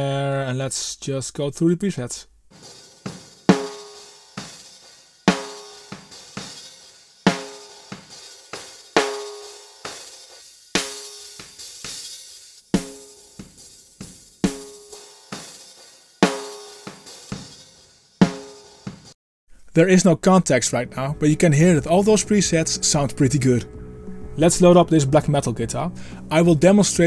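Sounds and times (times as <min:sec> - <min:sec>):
snare drum hits: 0:07.3 - 0:10.0, 0:12.8 - 0:15.6.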